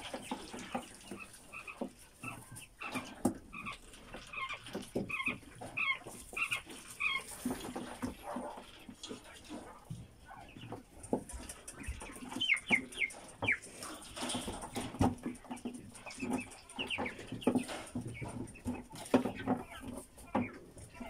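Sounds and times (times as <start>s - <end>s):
quail chirping: 0.0s - 21.0s
wire cage rattling: 10.7s - 21.0s.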